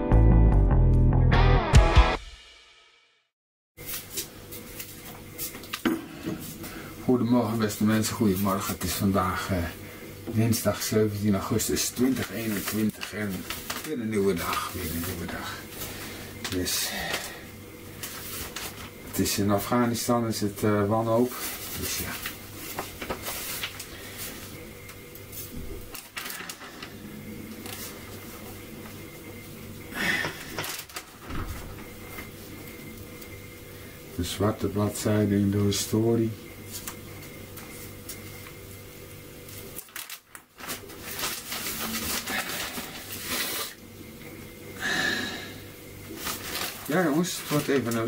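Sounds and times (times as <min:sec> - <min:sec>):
steady low hum: 0:03.8 - 0:48.0
rustling handling noise: 0:10.4 - 0:17.3, 0:17.9 - 0:20.1, 0:21.1 - 0:29.1, 0:39.4 - 0:43.8, 0:46.0 - 0:48.0.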